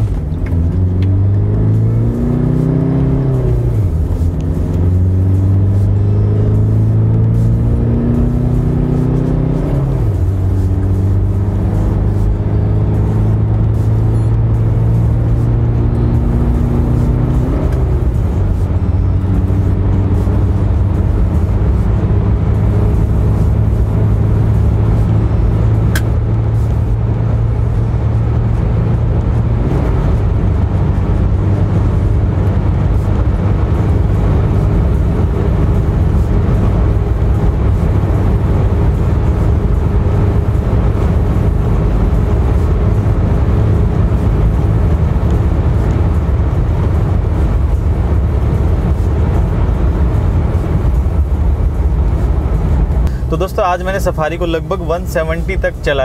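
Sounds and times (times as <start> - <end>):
diesel engine drone: 0.0 - 56.0
road and wind noise: 0.0 - 56.0.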